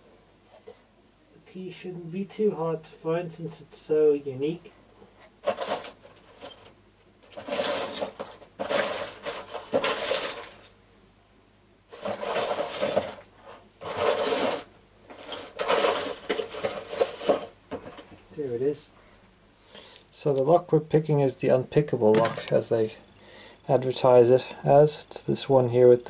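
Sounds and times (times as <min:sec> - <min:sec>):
small metal items clinking: 0:05.4 - 0:10.7, 0:11.9 - 0:17.6.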